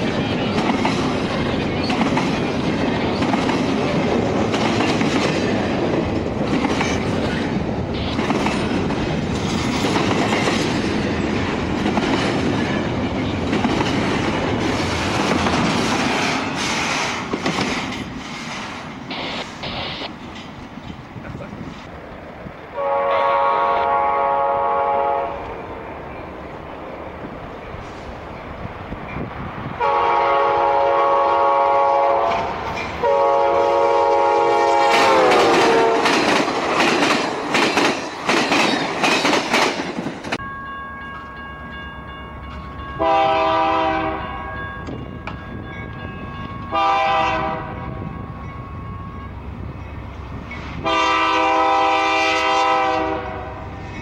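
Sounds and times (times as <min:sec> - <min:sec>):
train rumble and wheel clatter: 0:00.0 - 0:54.0
locomotive horn blasts: 0:22.8 - 0:25.6, 0:29.8 - 0:36.1, 0:43.0 - 0:44.6, 0:46.7 - 0:48.0, 0:50.8 - 0:53.6
train air horn blasts: 0:22.8 - 0:25.6, 0:29.8 - 0:36.2, 0:43.0 - 0:44.5, 0:46.7 - 0:48.0, 0:50.8 - 0:53.8.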